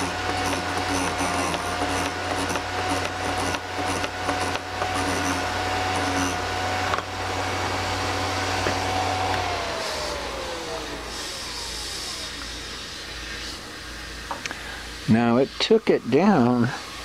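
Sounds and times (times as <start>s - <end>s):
drill bit grinding scrapes: 0.0s - 10.2s, 11.0s - 13.7s
sharpener motor whine: 0.0s - 13.7s.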